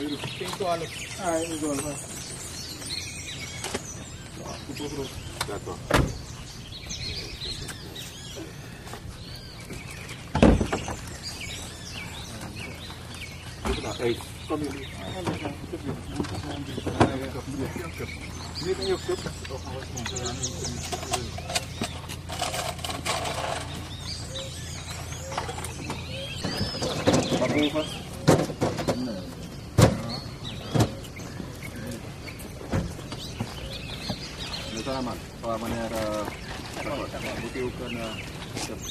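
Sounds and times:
birds chirping and whistling: 0.0s - 38.9s
loud thump: 5.9s - 6.3s, 10.3s - 11.0s.

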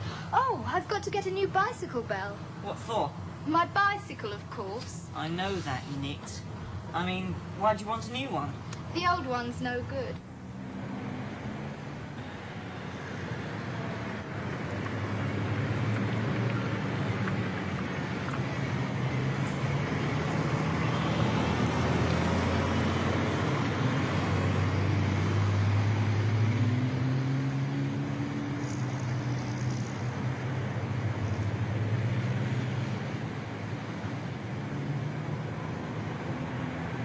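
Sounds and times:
bus diesel engine running: 0.0s - 26.2s
road noise: 0.0s - 37.0s.

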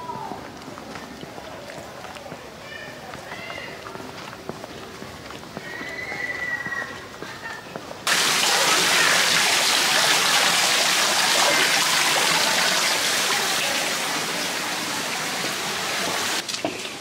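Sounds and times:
rushing stream water: 8.1s - 17.0s.

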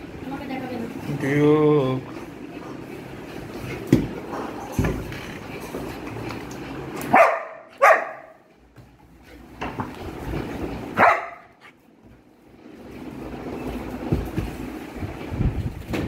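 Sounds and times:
dog barking: 7.1s - 8.4s, 11.0s - 11.6s.

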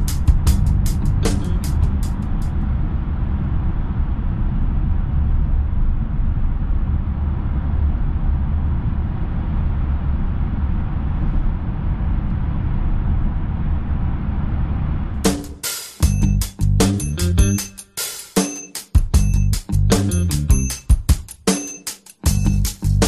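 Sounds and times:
car engine drone: 0.0s - 15.3s.

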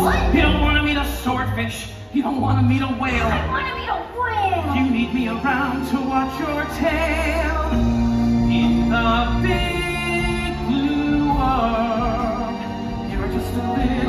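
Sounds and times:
backing music: 0.0s - 14.0s.

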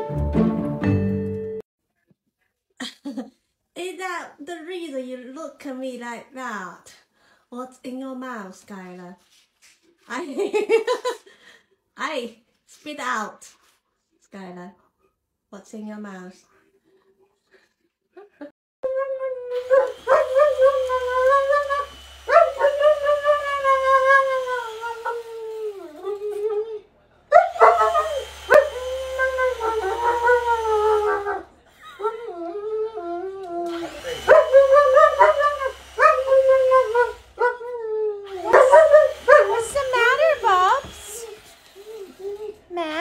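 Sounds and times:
dog howling and whining: 18.8s - 40.5s, 41.2s - 42.7s.

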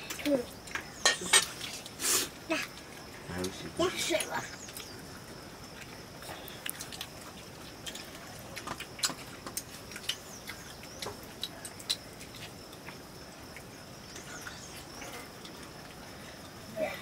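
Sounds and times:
faint chirps: 13.5s - 17.0s.

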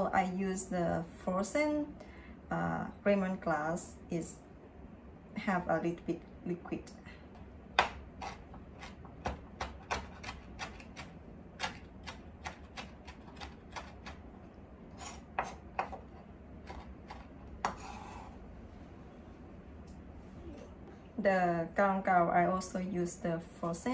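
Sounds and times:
knife chopping on wooden board: 7.8s - 14.2s, 15.0s - 18.3s
knife scrape: 14.9s - 18.4s.

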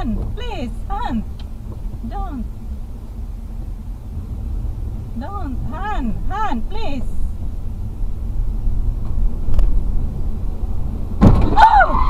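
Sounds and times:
car engine and road noise: 0.0s - 12.0s
high rising and falling voice cries: 11.6s - 12.0s.

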